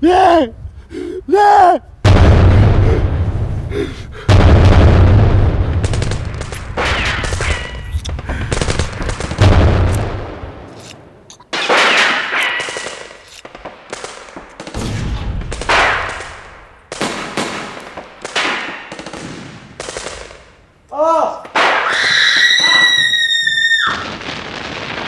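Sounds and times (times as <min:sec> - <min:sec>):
deep boom: 0:02.0 - 0:10.6
explosions rumbling: 0:02.0 - 0:10.8, 0:14.7 - 0:18.0, 0:21.6 - 0:25.0
gunshots: 0:04.3 - 0:20.6, 0:21.4 - 0:22.6.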